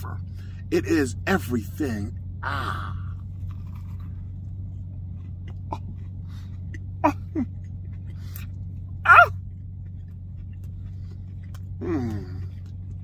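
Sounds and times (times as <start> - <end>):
car interior hum: 0.0 - 13.0
man chewing crunchy food: 2.2 - 13.0
man murmuring: 11.8 - 12.5.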